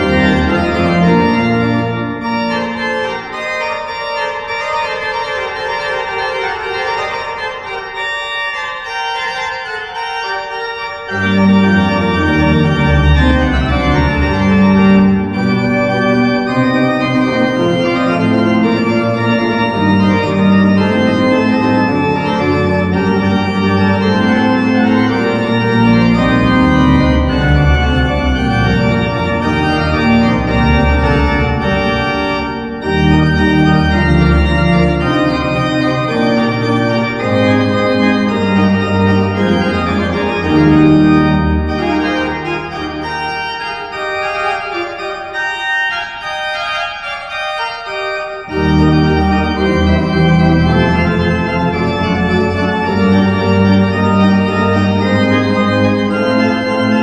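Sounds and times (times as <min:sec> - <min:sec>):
church pipe organ playing: 0:00.0 - 0:57.0.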